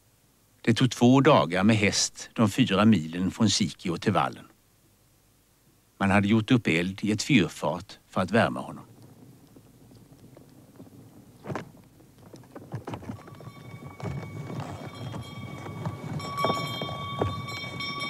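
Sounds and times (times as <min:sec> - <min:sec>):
sleigh runners on snow: 0:08.4 - 0:18.0
steady ringing tone: 0:13.2 - 0:18.0.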